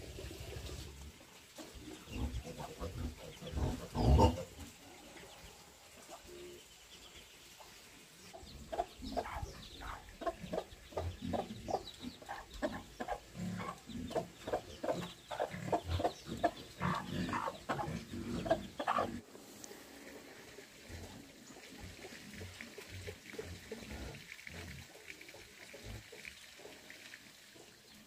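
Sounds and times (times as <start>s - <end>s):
hen clucking: 8.3s - 19.2s
chicks peeping: 8.4s - 19.2s.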